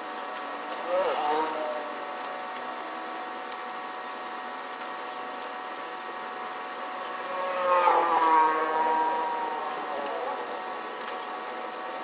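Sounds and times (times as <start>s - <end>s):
vehicle engine passing by: 7.2s - 10.6s.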